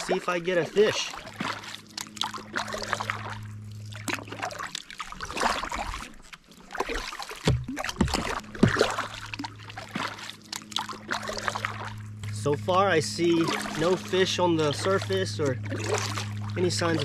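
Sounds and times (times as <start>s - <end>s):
low steady hum: 0.0s - 17.0s
paddle blades splashing: 0.0s - 17.0s
water running off paddle: 0.0s - 17.0s
sharp knocks: 7.4s - 8.8s.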